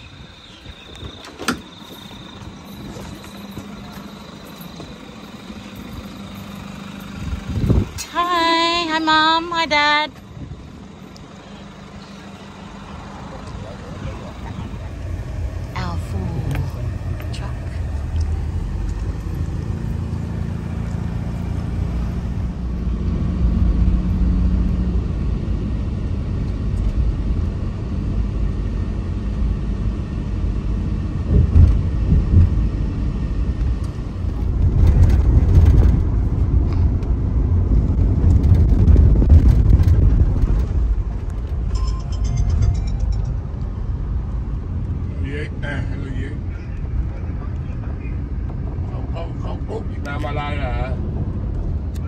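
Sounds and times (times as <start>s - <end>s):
van road and engine rumble: 0.0s - 52.0s.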